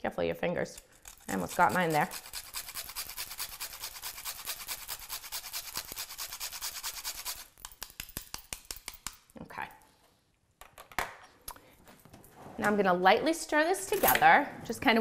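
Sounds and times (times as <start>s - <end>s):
nutmeg rasping on a grater: 0.8s - 7.5s.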